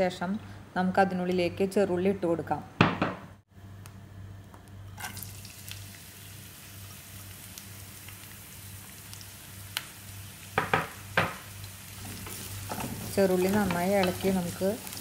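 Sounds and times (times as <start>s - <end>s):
shallots sizzling in hot oil: 5.0s - 15.0s.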